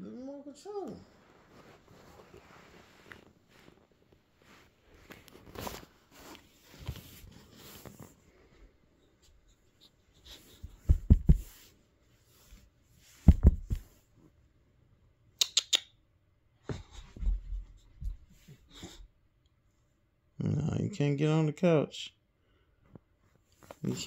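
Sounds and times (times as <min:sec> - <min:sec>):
soft bumps: 0:10.6 - 0:11.6, 0:13.1 - 0:14.0
sharp clicks: 0:15.4 - 0:15.9.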